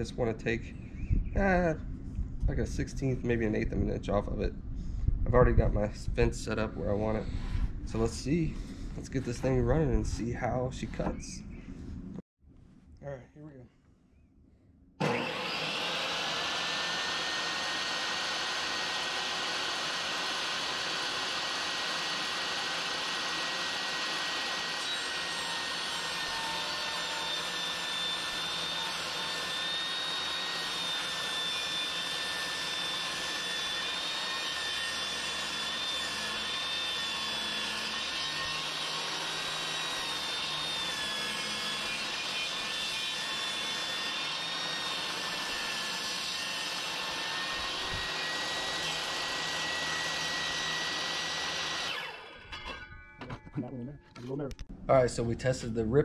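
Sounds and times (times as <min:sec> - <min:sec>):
table saw cutting wood: 0:15.0 - 0:52.9.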